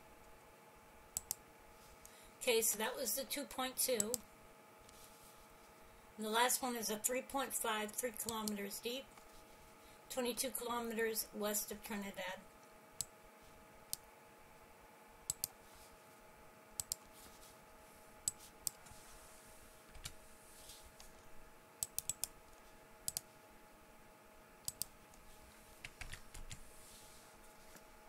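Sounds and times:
faint steady hum: 0.0s - 28.0s
computer mouse clicking: 1.2s - 1.4s, 15.3s - 15.6s, 16.8s - 17.1s, 21.8s - 22.4s, 23.0s - 23.3s, 24.6s - 24.9s.

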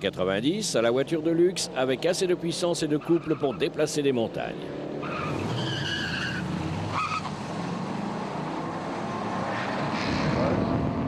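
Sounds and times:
car engines accelerating hard: 0.5s - 11.0s
tire squeal: 3.0s - 3.6s, 5.0s - 7.4s.

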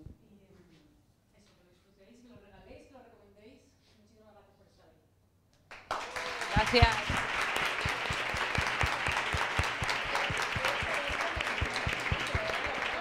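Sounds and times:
loud close claps: 5.6s - 13.0s
audience applauding: 5.7s - 13.0s.

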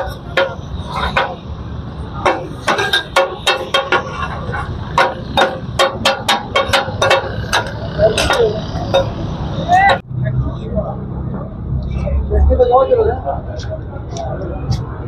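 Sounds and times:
metal spatula clanking on iron griddle: 2.2s - 9.2s.

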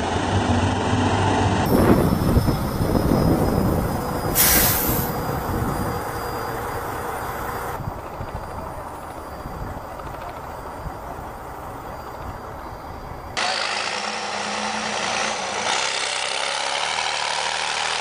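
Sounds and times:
truck diesel engine rumbling: 0.0s - 12.5s
air hiss: 4.3s - 5.3s.

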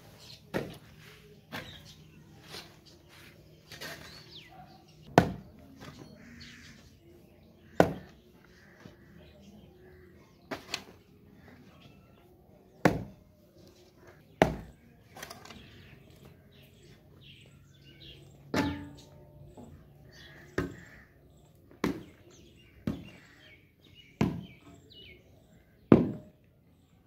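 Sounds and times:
birds chirping: 0.0s - 27.0s
hoe chopping clay soil: 0.4s - 2.9s, 3.6s - 4.4s, 5.1s - 6.1s, 7.6s - 8.2s, 10.4s - 11.1s, 12.7s - 13.2s, 14.0s - 15.8s, 18.5s - 19.2s, 20.4s - 23.4s, 24.2s - 24.8s.

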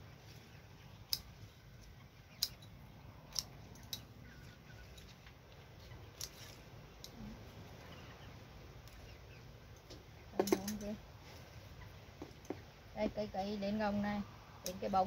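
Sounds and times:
scissors snipping stalks: 3.3s - 4.0s.

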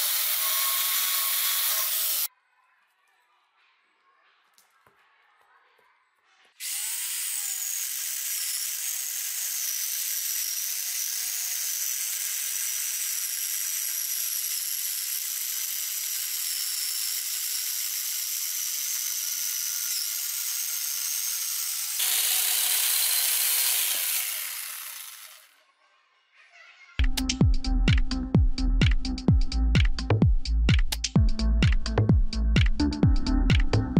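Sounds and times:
chain sawing through log: 16.2s - 25.5s.

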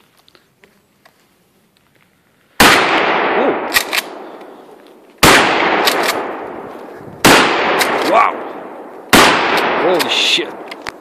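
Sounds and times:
shotgun blasts echoing: 2.6s - 4.4s, 5.2s - 6.6s, 7.2s - 10.8s.

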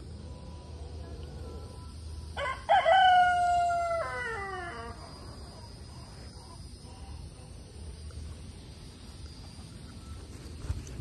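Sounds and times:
rooster crowing: 2.3s - 5.6s.

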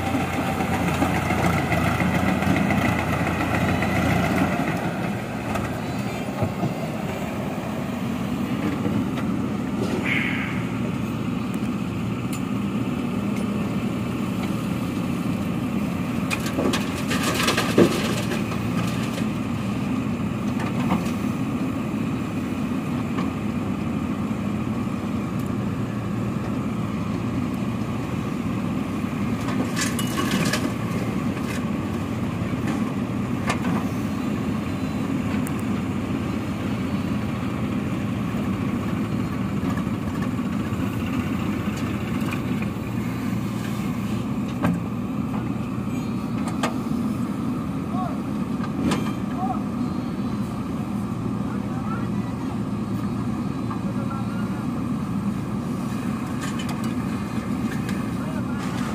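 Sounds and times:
diesel engine running under load: 0.0s - 58.9s
gravel clattering into steel trailer: 29.6s - 31.0s.

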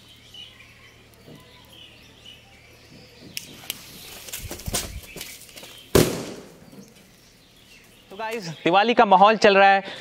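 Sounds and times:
firecracker fuse crackling: 0.0s - 8.5s
firecracker bang: 5.9s - 6.7s.

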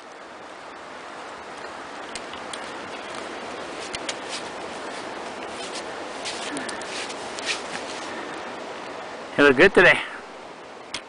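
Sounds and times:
steady rushing hiss: 0.0s - 11.0s
trekking pole tips clicking: 1.6s - 8.1s.

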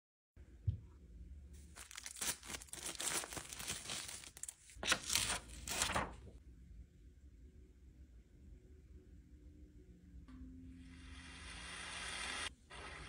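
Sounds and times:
dry crinkling and rustling: 1.6s - 6.4s.

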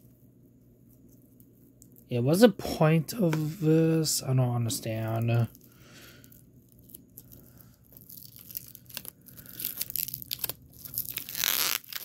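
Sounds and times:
plastic wrap crinkling: 4.7s - 12.0s
plastic wrap ripping: 4.9s - 12.0s.

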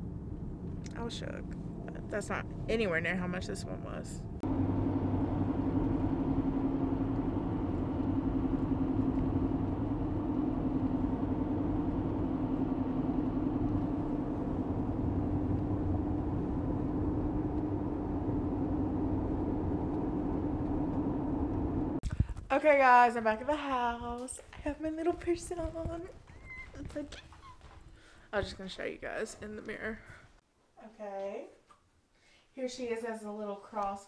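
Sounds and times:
car engine and road drone: 0.0s - 22.0s.

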